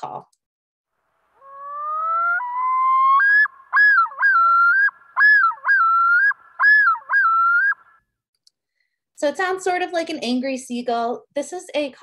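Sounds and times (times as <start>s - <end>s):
loon yodel call: 1.4s - 8.0s.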